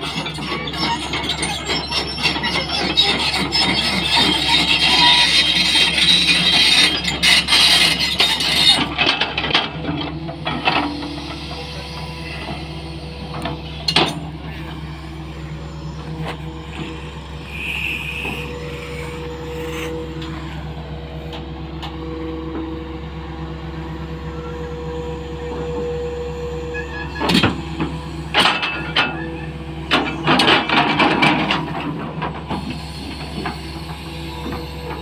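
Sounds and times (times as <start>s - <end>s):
excavator engine droning: 0.0s - 35.0s.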